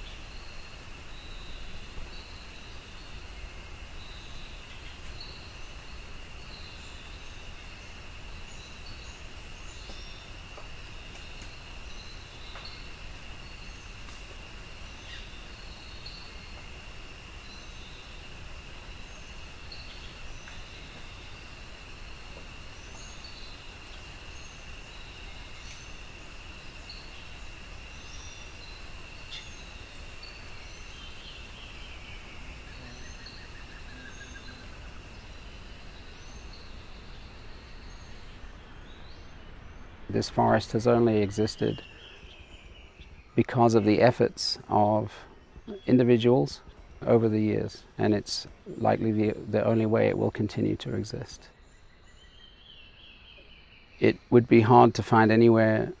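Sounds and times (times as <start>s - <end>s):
bird chirps: 0.0s - 56.0s
high insect drone: 0.0s - 56.0s
bird trill: 22.7s - 56.0s.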